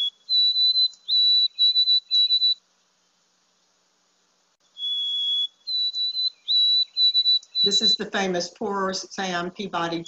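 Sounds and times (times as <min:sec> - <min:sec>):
sparrow whistling song: 0:00.0 - 0:02.6, 0:04.7 - 0:08.1.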